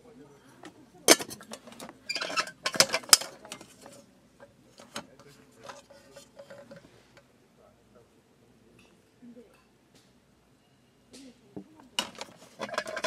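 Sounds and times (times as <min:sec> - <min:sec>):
metal cook pot and lid clattering: 0:01.1 - 0:04.0, 0:12.0 - 0:13.0.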